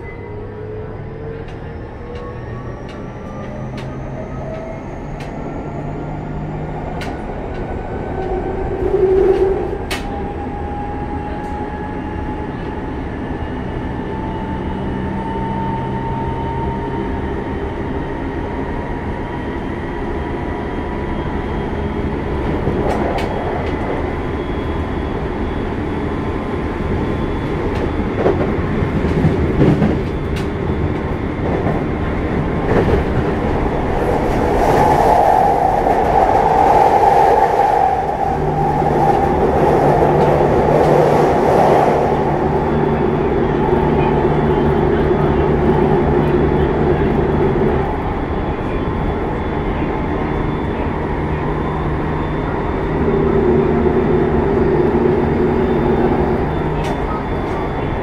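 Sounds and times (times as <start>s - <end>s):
wheels rumbling on rail: 0.0s - 58.0s
rail clacks: 27.5s - 47.7s.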